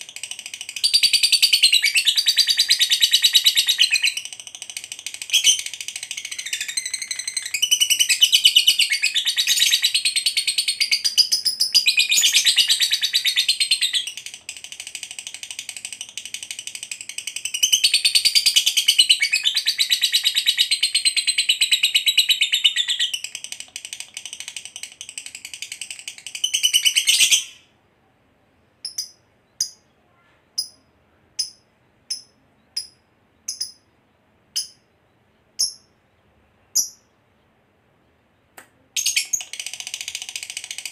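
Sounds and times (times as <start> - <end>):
sharp bird chirps: 0.0 - 14.6, 28.8 - 30.0, 30.6 - 37.2, 38.4 - 40.9
bird chattering trill: 0.0 - 27.5, 28.8 - 29.9, 30.6 - 33.9, 34.6 - 34.9, 35.6 - 35.9, 36.8 - 37.1.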